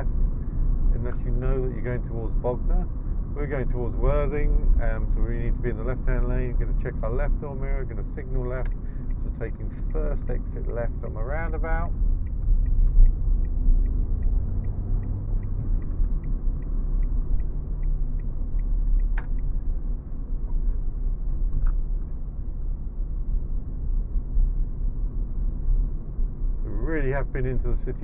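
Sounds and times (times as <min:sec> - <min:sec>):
road and engine rumble: 0:00.0 - 0:28.0
turn indicator ticking: 0:08.2 - 0:20.6
sharp click: 0:18.2 - 0:19.5.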